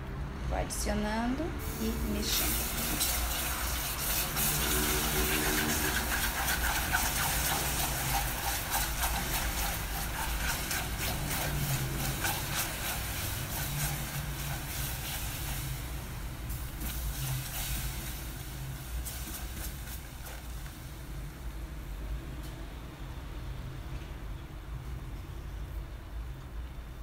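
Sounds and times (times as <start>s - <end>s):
caramel hissing and bubbling: 1.6s - 22.2s
spatula scraping a pot: 2.7s - 15.8s.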